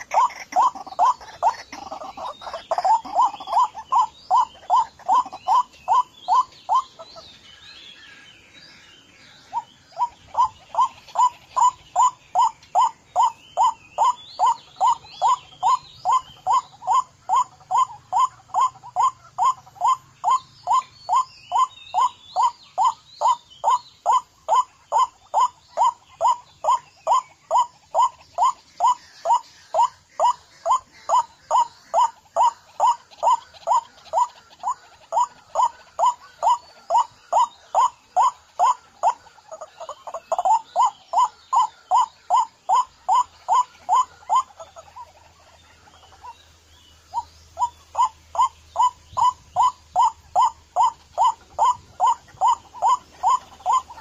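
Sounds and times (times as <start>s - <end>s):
waterhen repeated kwak call: 0.0s - 6.9s
faint small bird chirps: 0.0s - 54.0s.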